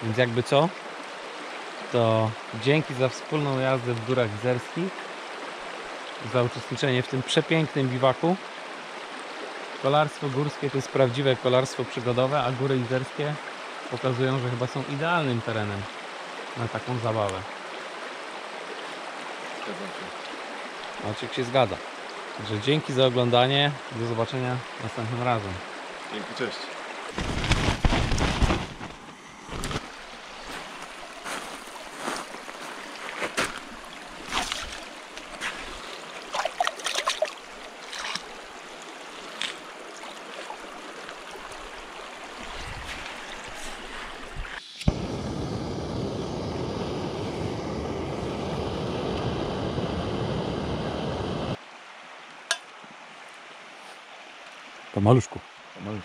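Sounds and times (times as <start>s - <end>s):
stream running: 0.0s - 45.3s, 47.1s - 56.0s
loud steady rushing noise: 44.9s - 51.6s.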